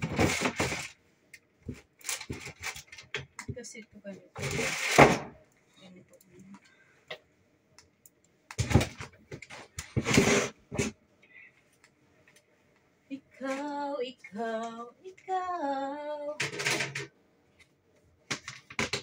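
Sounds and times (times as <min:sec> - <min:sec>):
clothes and plastic bins rustling: 0:00.0 - 0:05.4, 0:08.6 - 0:15.7
woman singing held notes: 0:13.1 - 0:16.4.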